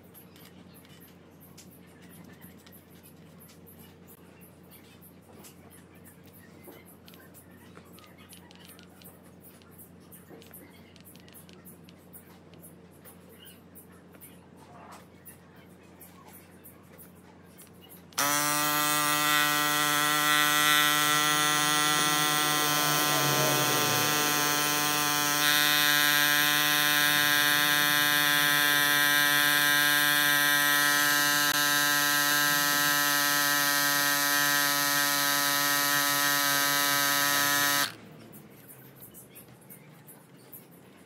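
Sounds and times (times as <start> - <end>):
electric pump buzzing: 18.2 - 38.0.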